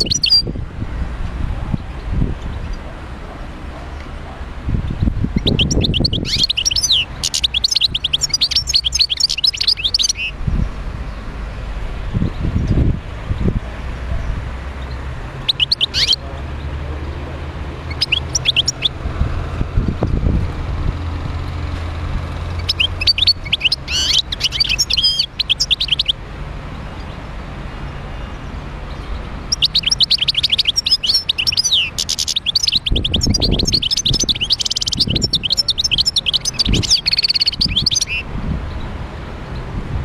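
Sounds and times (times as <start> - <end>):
goldfinch twittering song: 0.0 - 0.5, 4.8 - 11.2, 14.3 - 19.2, 22.3 - 26.2, 28.0 - 39.7.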